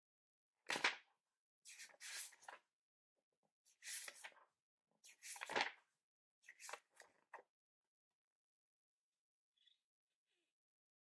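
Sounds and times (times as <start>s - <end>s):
book pages turning: 0.7s - 1.1s, 1.7s - 2.6s, 3.7s - 4.4s, 5.0s - 7.4s.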